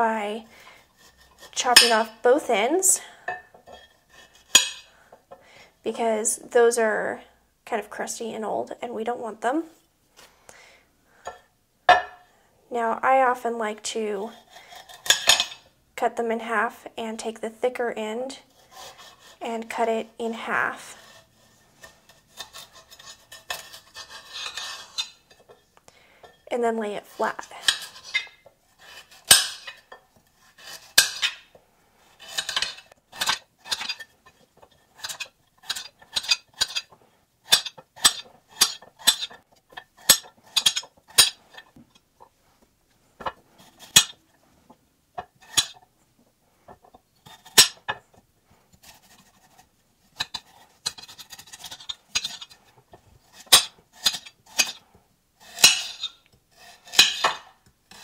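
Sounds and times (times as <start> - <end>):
knife scraping board: 0.6 - 2.1, 3.3 - 5.0, 14.3 - 15.6, 18.5 - 19.5, 20.7 - 25.6, 27.0 - 42.0, 43.2 - 44.5, 45.2 - 45.9, 46.7 - 58.0.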